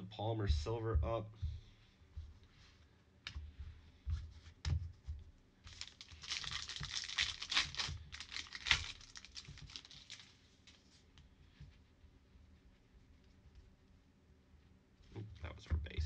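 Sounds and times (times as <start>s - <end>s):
foil pack crinkling and tearing: 5.6s - 10.8s.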